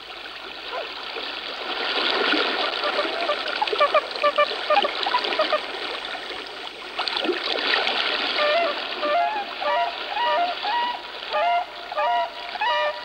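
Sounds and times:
water splashing: 0.0 - 13.0
swans honking: 2.6 - 5.8, 8.4 - 13.0.

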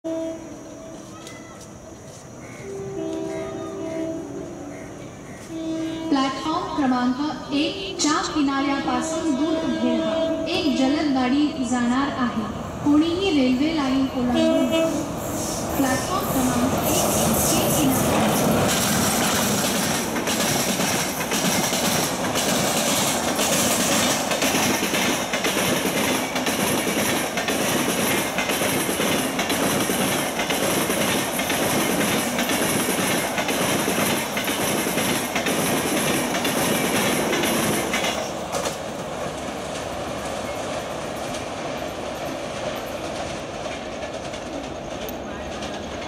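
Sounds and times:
train rushing past: 0.1 - 46.0
wheels clattering over rail joints: 18.0 - 46.0.

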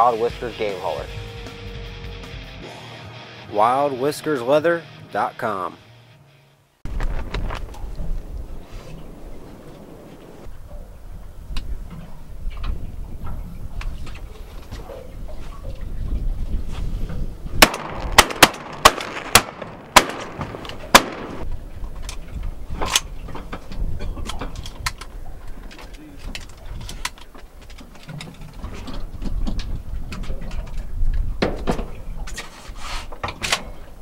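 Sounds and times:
shotgun shots: 17.6 - 21.4.

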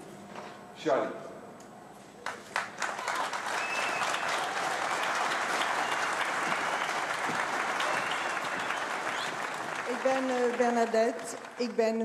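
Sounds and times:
crowd applauding: 2.2 - 12.0.

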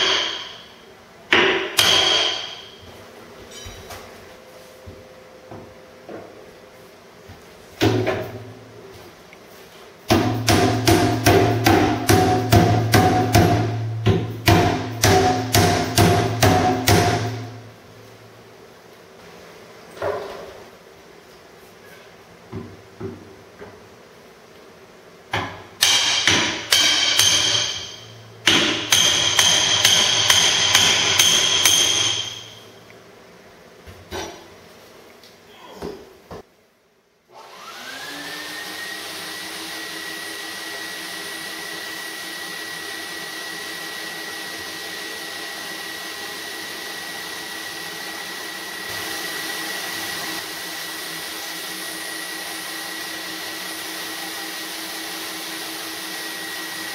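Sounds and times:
hammer ringing on iron: 0.0 - 2.8, 10.1 - 17.4, 25.8 - 32.6.

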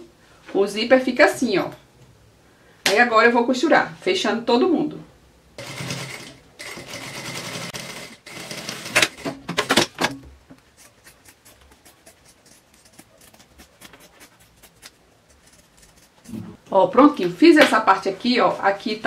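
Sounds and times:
sewing machine stitching: 5.6 - 9.9
scissors snipping fabric: 10.8 - 16.4.

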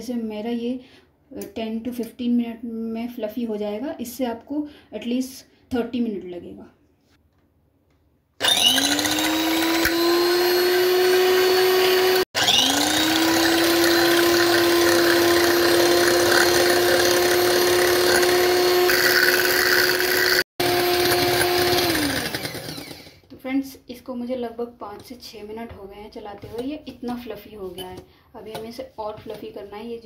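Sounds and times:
electric hand mixer whining: 8.4 - 23.3.

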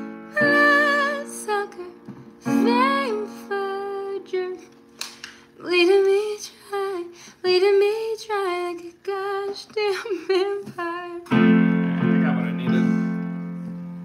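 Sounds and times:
woman singing: 0.0 - 4.8, 5.5 - 11.4.

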